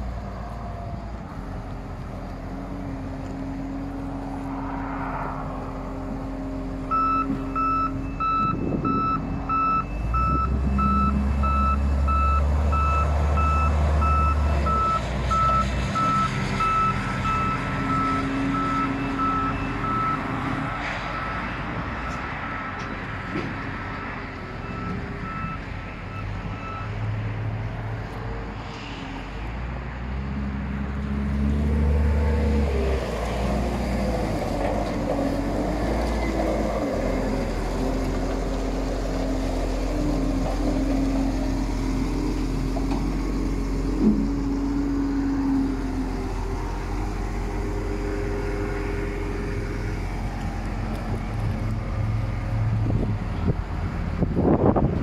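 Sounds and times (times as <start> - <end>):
backup alarm beeping: 6.9 - 15.6
diesel engine running: 30.1 - 55.0.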